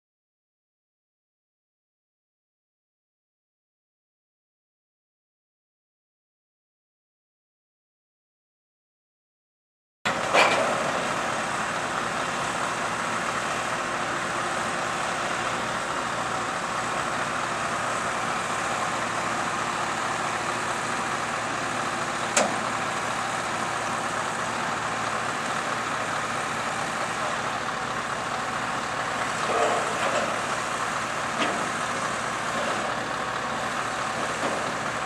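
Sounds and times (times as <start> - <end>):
heavy lorry running: 10.1 - 35.0
road noise: 10.1 - 35.0.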